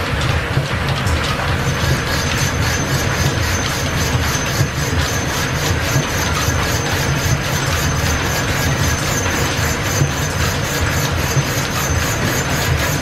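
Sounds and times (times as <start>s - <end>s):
machine shop belts and shafting: 0.0s - 13.0s.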